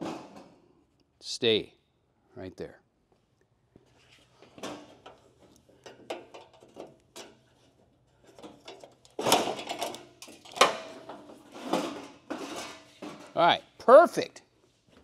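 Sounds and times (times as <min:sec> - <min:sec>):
metallic clanks and scrapes: 0:04.0 - 0:13.5.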